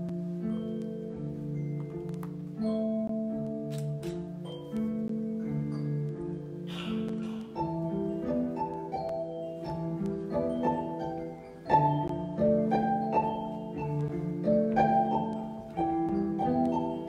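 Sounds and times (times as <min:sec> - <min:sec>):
cello: 0:00.0 - 0:17.0
violin: 0:06.0 - 0:17.0.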